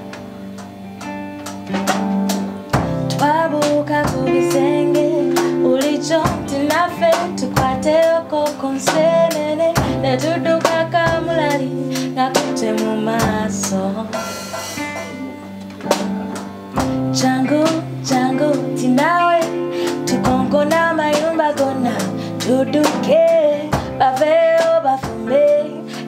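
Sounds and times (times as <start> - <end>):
guitar: 0.0 - 26.0
drum beat: 1.0 - 4.6, 12.4 - 18.2
woman singing: 3.1 - 15.5, 16.8 - 26.0.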